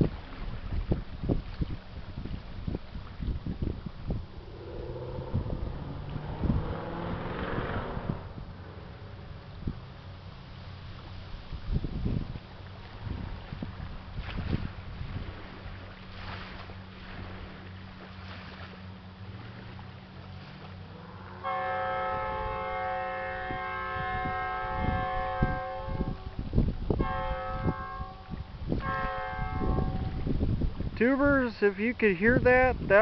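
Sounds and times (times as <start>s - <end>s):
wind buffeting microphone: 0.0s - 33.0s
low steady hum: 0.1s - 30.8s
tugboat horn blasts: 20.8s - 30.3s.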